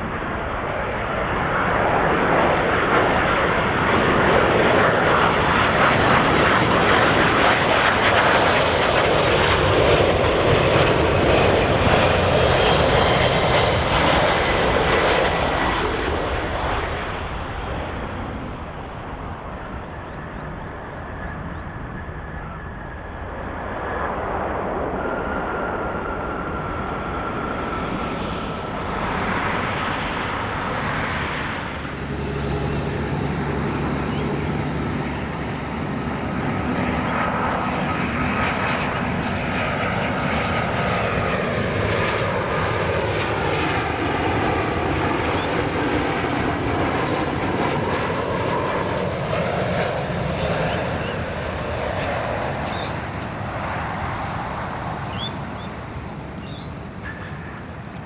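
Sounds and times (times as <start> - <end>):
airliner engines roaring: 0.0 - 58.0.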